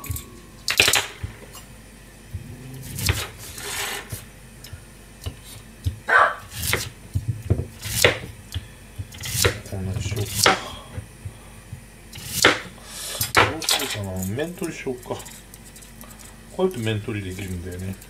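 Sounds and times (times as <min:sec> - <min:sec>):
knife slicing radish: 0:06.4 - 0:07.0, 0:07.7 - 0:08.3, 0:09.1 - 0:10.6, 0:12.1 - 0:12.6
knife knocking on cutting board: 0:06.7 - 0:08.3.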